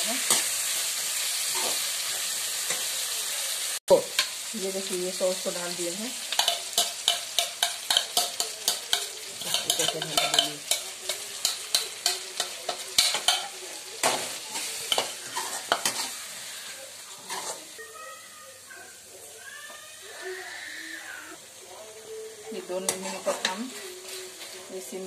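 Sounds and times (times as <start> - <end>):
vegetables sizzling in oil: 0.0 - 25.0
metal spoon scraping a pan: 0.2 - 0.8, 1.4 - 2.9, 6.2 - 17.8, 22.6 - 25.0.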